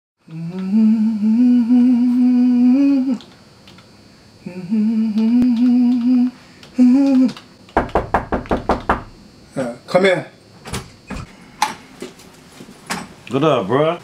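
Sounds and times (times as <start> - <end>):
man humming: 0.2 - 3.3, 4.4 - 7.5.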